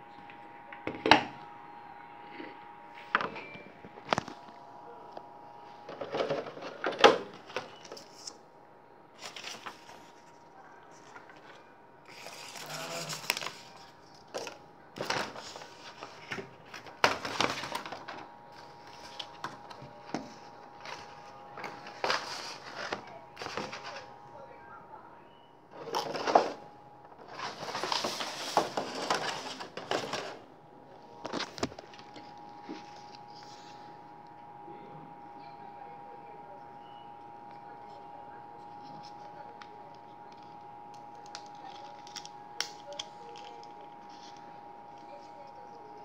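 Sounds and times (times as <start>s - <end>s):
paper and cardboard rustling: 5.8s - 8.4s, 9.2s - 24.2s, 25.8s - 30.5s
plastic packaging cracking: 40.4s - 44.4s.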